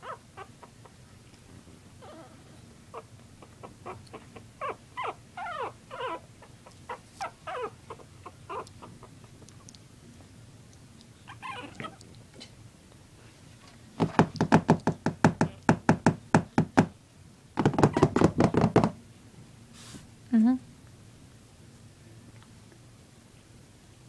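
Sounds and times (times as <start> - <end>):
puppies yelping and squeaking: 0.0 - 0.9, 2.0 - 9.8, 11.2 - 12.1.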